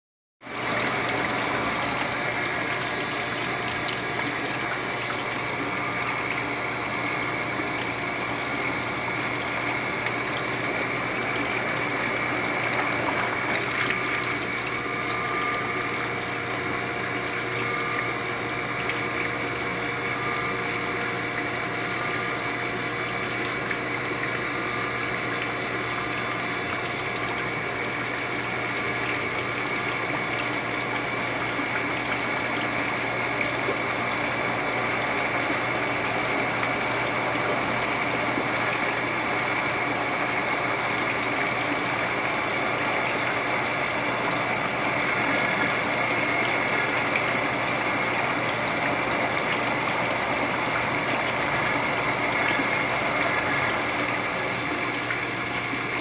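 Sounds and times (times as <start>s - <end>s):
electric water pump humming: 0.4s - 56.0s.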